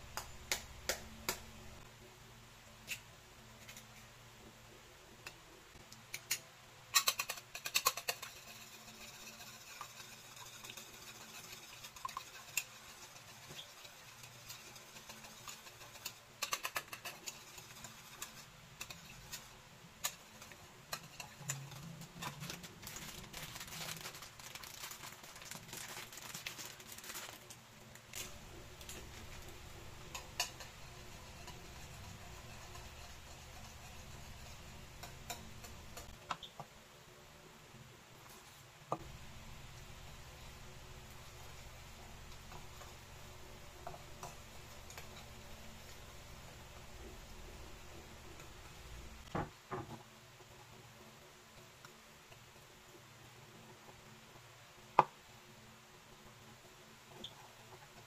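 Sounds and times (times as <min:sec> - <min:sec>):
whisk beating eggs in bowl: 0:07.0 - 0:24.4, 0:28.2 - 0:36.2.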